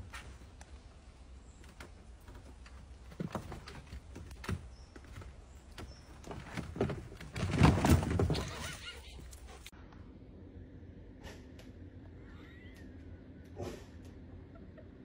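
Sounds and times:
dog paws thudding on wood: 0:01.6 - 0:08.7.

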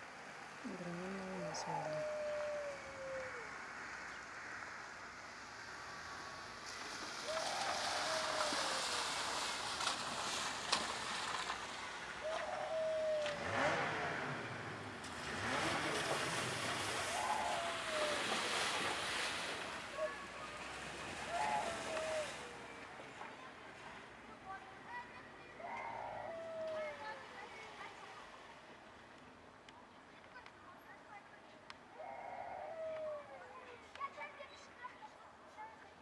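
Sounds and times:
passing road traffic: 0:00.1 - 0:27.3.

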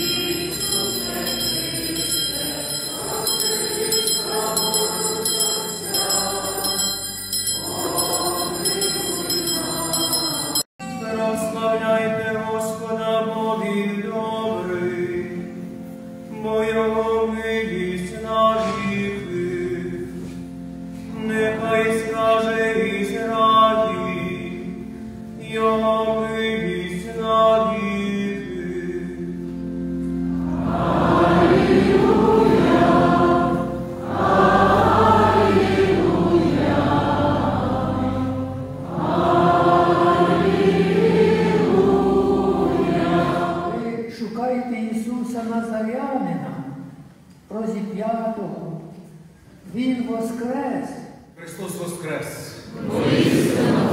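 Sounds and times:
choir singing: 0:00.0 - 0:15.7, 0:30.1 - 0:44.1, 0:52.6 - 0:53.9.

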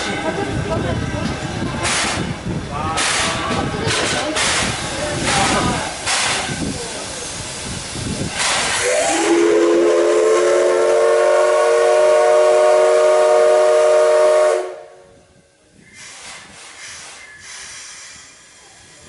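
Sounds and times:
steam hiss: 0:01.8 - 0:14.8, 0:15.7 - 0:19.0
steam locomotive whistle: 0:08.7 - 0:15.1.

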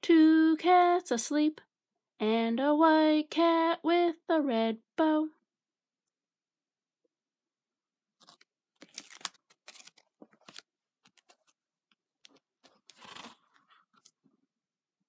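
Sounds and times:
book pages rustling: 0:08.2 - 0:14.3.

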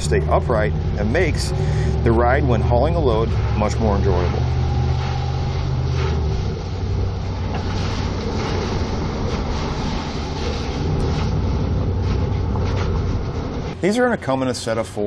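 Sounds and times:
low drone: 0:00.0 - 0:13.8
tyre noise on wet road: 0:00.0 - 0:13.8
low vehicle rumble: 0:00.0 - 0:14.6.

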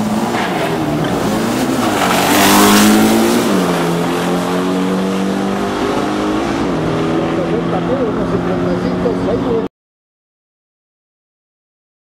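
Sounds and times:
car engine at full throttle: 0:00.0 - 0:09.7.

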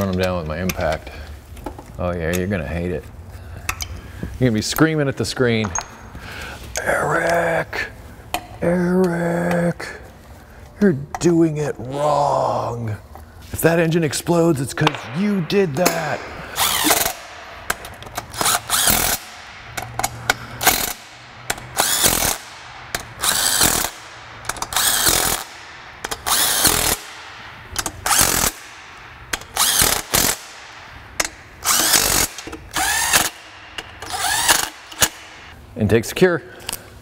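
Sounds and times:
impact driver whirring: 0:15.9 - 0:35.5.

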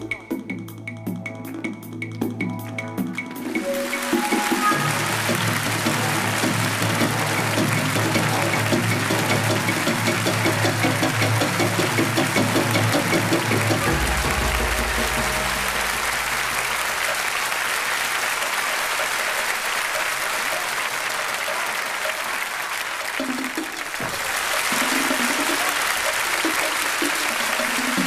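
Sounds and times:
music: 0:00.0 - 0:28.0
audience applauding: 0:03.4 - 0:28.0
short melodic notes: 0:13.8 - 0:17.5.

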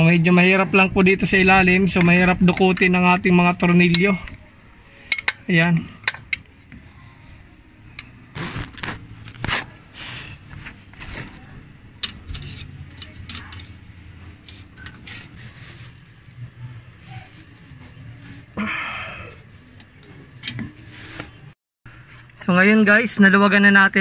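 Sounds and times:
wrench clicking on bolts: 0:12.0 - 0:13.8.

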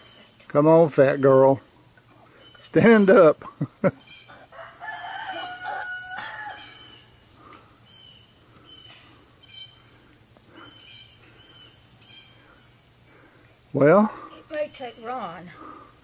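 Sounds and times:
rooster crowing: 0:04.3 - 0:07.1.

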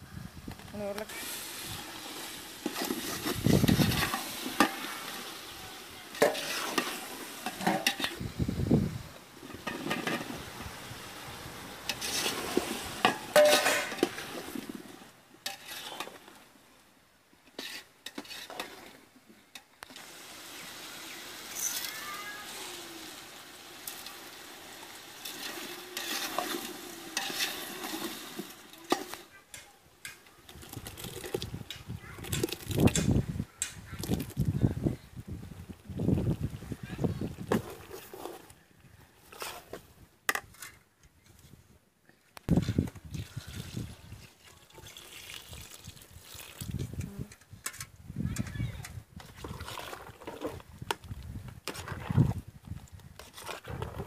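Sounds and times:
vegetables sizzling: 0:01.0 - 0:08.6, 0:09.2 - 0:16.4, 0:19.8 - 0:33.2
metal ladle scraping pot: 0:01.1 - 0:08.2, 0:09.4 - 0:16.4, 0:17.5 - 0:19.0, 0:24.8 - 0:33.7
ladle clinking against pot: 0:13.4 - 0:14.1.

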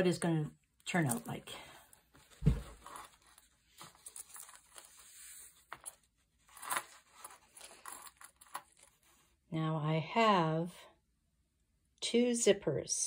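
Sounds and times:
zipper rustling and clicking: 0:02.6 - 0:09.2.

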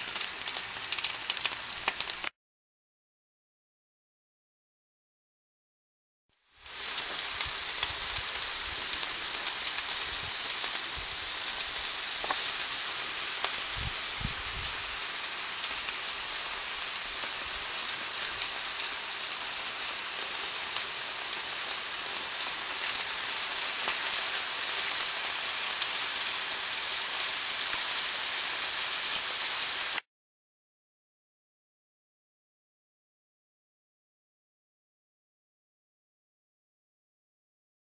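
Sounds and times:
steaks sizzling on a grill: 0:00.0 - 0:02.3, 0:06.5 - 0:30.0.

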